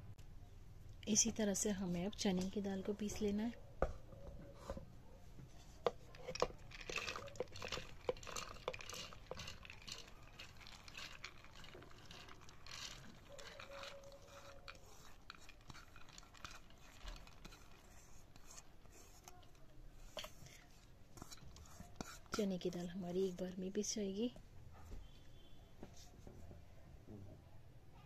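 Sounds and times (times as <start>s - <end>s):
grains pattering on steel: 6.3s - 18.5s.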